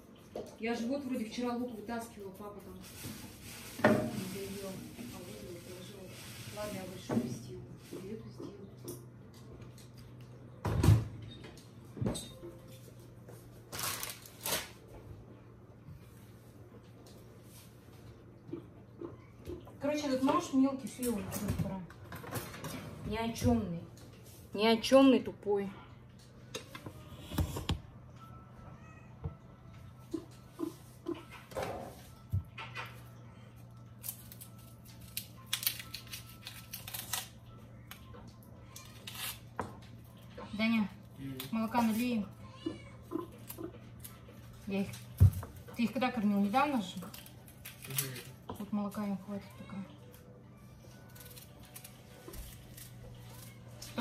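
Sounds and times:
rustling scrapes: 0:02.3 - 0:07.1
knife scraping onion skin: 0:35.1 - 0:37.3.

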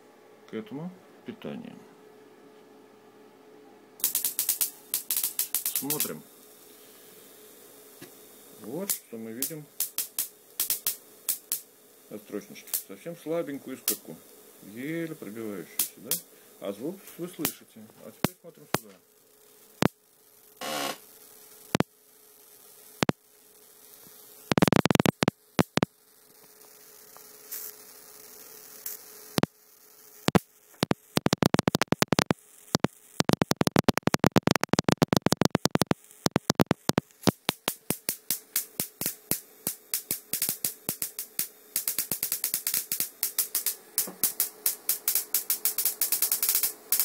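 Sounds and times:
faint steady hum: 0:00.0 - 0:47.0
high-voltage sparks snapping: 0:04.0 - 0:06.2, 0:08.0 - 0:13.0, 0:13.7 - 0:16.2, 0:17.0 - 0:20.0, 0:24.1 - 0:47.0.

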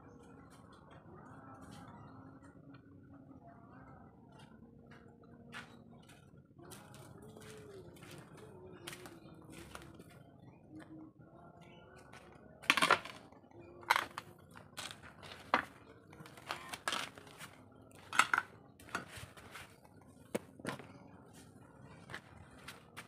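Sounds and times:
plastic tub clattering on concrete: 0:12.6 - 0:13.3, 0:18.1 - 0:19.1.

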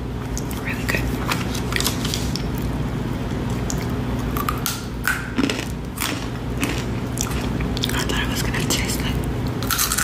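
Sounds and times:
low electrical hum: 0:00.0 - 0:10.0
person chewing crunchy snack: 0:01.6 - 0:08.3, 0:09.6 - 0:10.0.

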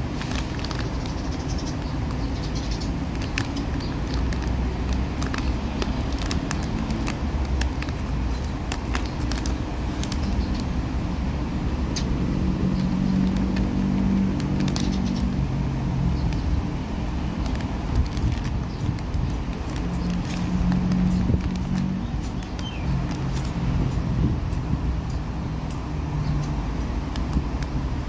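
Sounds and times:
plastic wrapper crinkling and tearing: 0:00.0 - 0:10.8, 0:12.9 - 0:23.8
low rumble of road traffic: 0:00.0 - 0:28.0.

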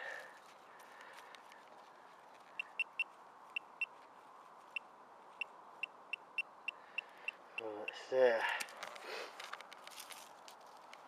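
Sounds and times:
metal detector probe beeping: 0:02.6 - 0:03.9.

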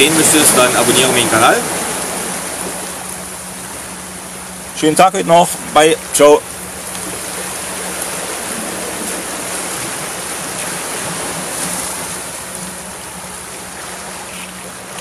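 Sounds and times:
waves washing on rocky shore: 0:00.0 - 0:03.9, 0:04.7 - 0:15.0.

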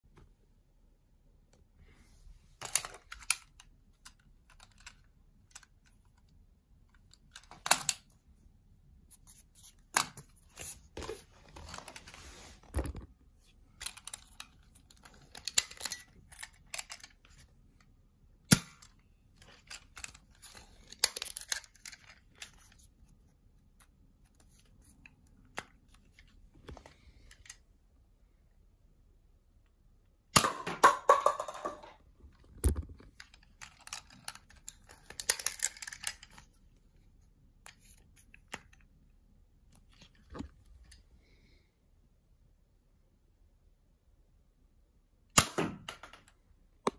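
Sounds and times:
scraping and rustling: 0:09.1 - 0:15.6.

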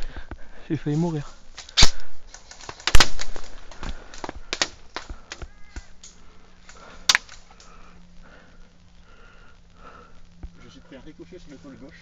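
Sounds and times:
loud crack: 0:01.6 - 0:07.7.

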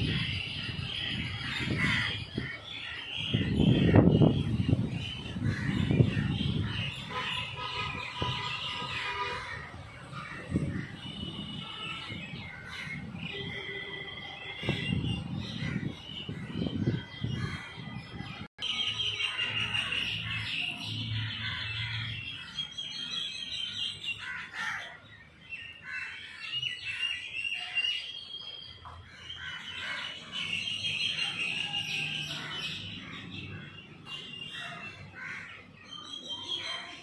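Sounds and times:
crows cawing: 0:01.4 - 0:02.6, 0:24.2 - 0:25.0, 0:34.5 - 0:35.6.

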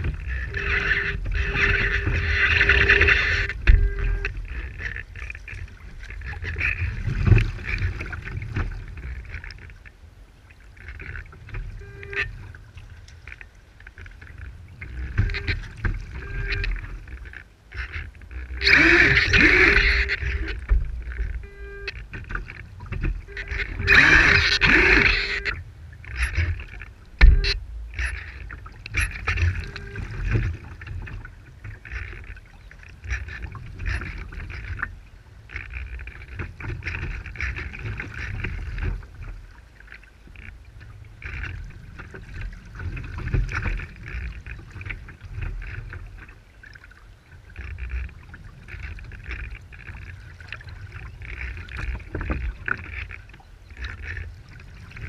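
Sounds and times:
wind on microphone: 0:00.0 - 0:09.4, 0:17.8 - 0:39.2
water splashing along hull: 0:00.0 - 0:55.0.

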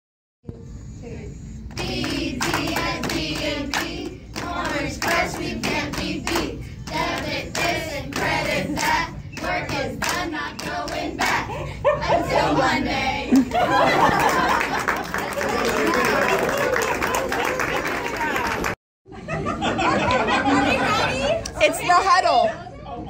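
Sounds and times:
rhythmic hand claps: 0:01.7 - 0:11.5
group chanting a cheer: 0:01.8 - 0:13.3.

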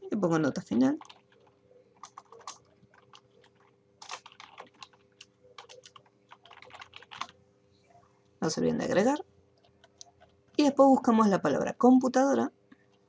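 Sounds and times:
typing on computer keyboard: 0:00.6 - 0:07.4.

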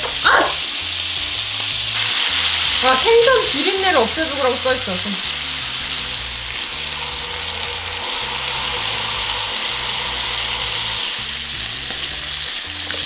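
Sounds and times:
fish sizzling in oil: 0:00.0 - 0:13.0
wine pouring: 0:05.2 - 0:13.0.

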